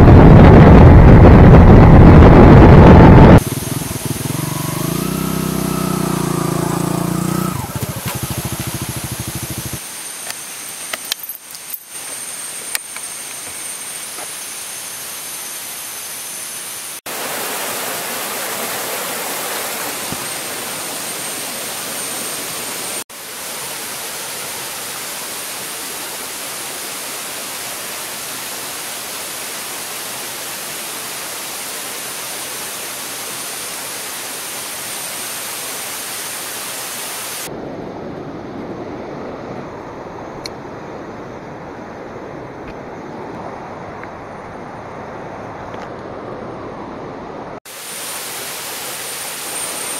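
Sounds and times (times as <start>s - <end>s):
stream water rushing: 3.4s - 37.5s, 46.2s - 49.9s.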